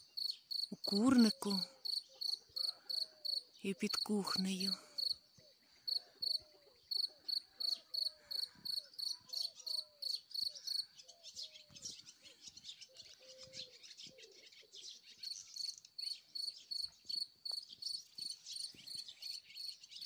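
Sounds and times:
cricket chirping: 0:00.0 - 0:03.4, 0:04.6 - 0:05.2, 0:05.9 - 0:10.8, 0:15.6 - 0:19.0.

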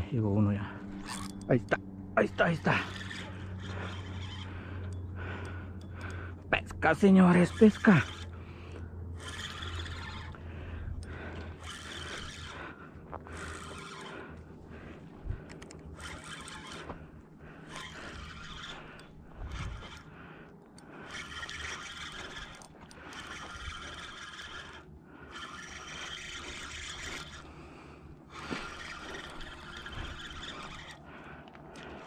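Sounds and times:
fishing reel whirring: 0:00.5 - 0:32.0.

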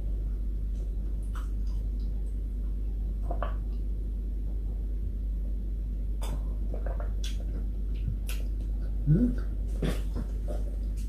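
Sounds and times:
steady low hum: 0:00.0 - 0:11.0
person swallowing water: 0:08.1 - 0:10.4.

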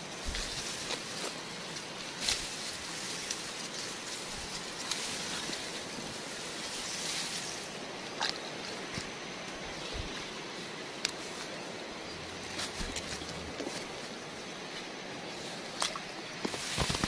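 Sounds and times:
grass and reeds rustling: 0:00.0 - 0:17.0
steady outdoor hiss: 0:00.0 - 0:17.0
stems snapping: 0:00.2 - 0:05.8, 0:15.7 - 0:17.0.

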